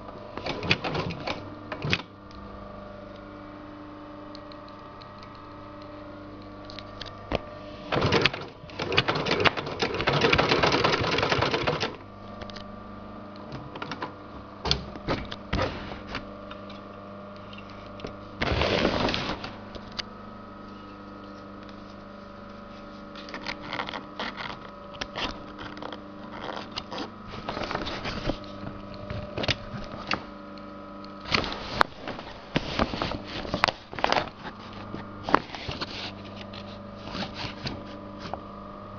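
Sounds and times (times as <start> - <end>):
steady machine hum: 0.0 - 38.9
sewing machine clattering: 7.9 - 12.0.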